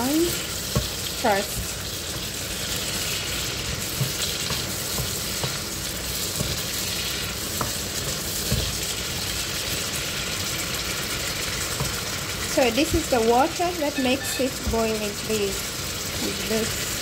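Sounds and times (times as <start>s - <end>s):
pork sizzling in oil: 0.0s - 17.0s
wooden spoon stirring: 0.3s - 12.5s
spoon knocking against pan: 3.9s - 5.7s.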